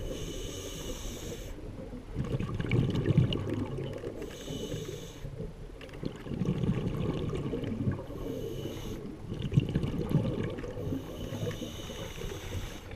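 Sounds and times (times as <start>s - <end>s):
regulator hissing inhale: 0.0s - 1.6s, 4.2s - 5.4s, 8.0s - 9.2s, 10.8s - 12.9s
bubbling of exhaled air: 0.0s - 12.9s.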